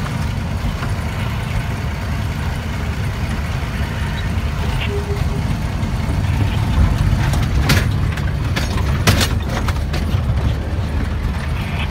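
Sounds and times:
truck engine rumbling: 0.0s - 11.9s.

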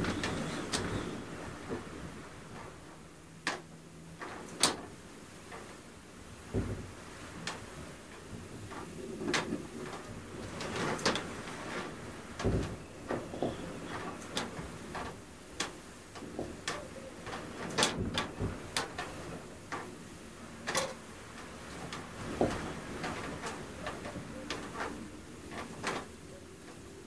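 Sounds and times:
blizzard wind hissing: 0.0s - 2.6s.

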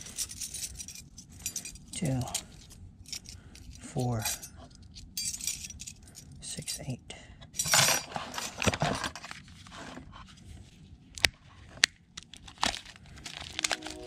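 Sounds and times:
scraping and rustling of handling: 7.6s - 10.9s.

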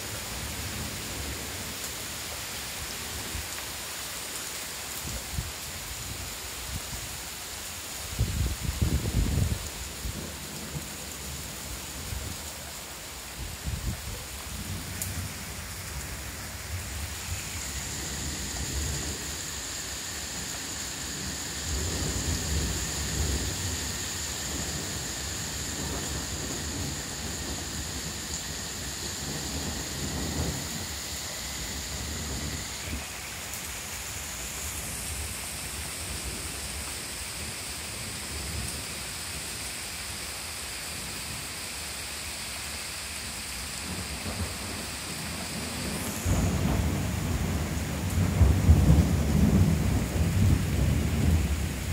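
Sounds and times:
heavy rain pouring: 0.0s - 51.9s
thunder rumbling: 13.4s - 33.5s, 43.8s - 51.9s.

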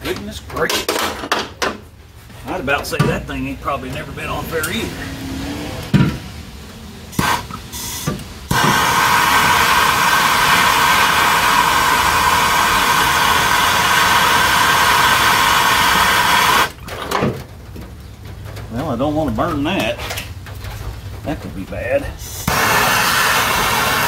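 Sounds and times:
gas torch flame hissing: 7.1s - 16.7s, 22.2s - 24.0s.

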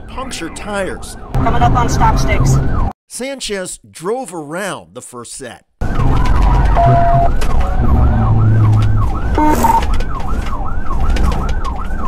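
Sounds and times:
car rumble at speed: 5.8s - 11.6s
police siren yelping: 5.8s - 12.0s
short electronic beep: 6.8s - 7.3s, 9.4s - 9.8s.

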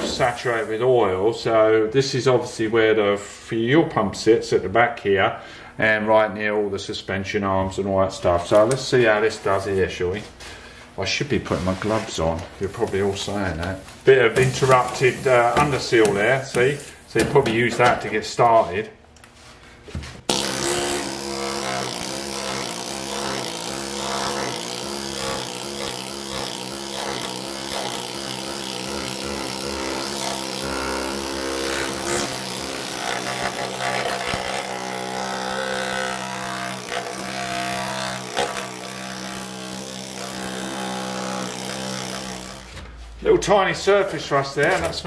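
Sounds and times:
air needle scaler buzzing: 0.0s - 1.0s, 14.2s - 17.1s, 20.3s - 43.1s.

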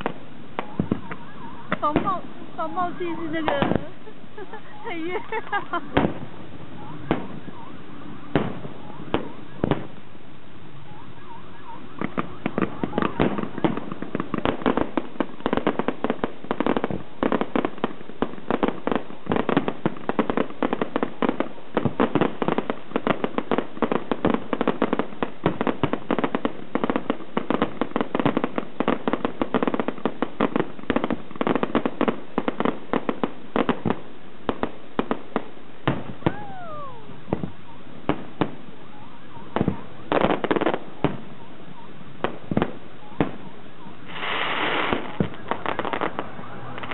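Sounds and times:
fireworks bangs and crackles: 0.0s - 46.9s.

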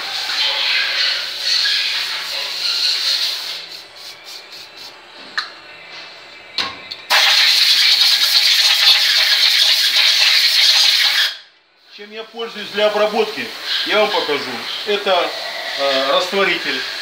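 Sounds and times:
aerosol can spraying: 1.6s - 5.0s
air blow gun hissing: 12.0s - 17.0s.

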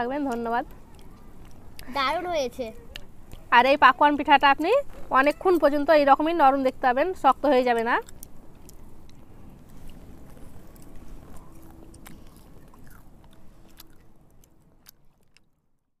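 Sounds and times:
people chewing soft cakes: 0.1s - 3.7s, 7.7s - 15.9s.

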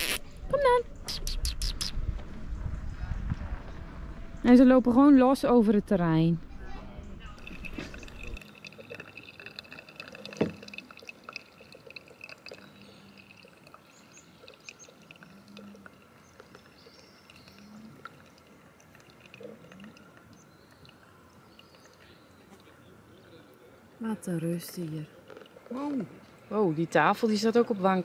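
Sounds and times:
coffee trickling and dripping: 7.4s - 28.0s.

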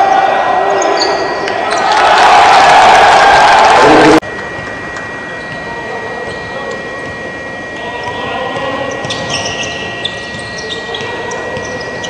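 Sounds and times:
steady high-pitched tone: 3.7s - 11.6s
sneakers squeaking: 5.3s - 12.0s.

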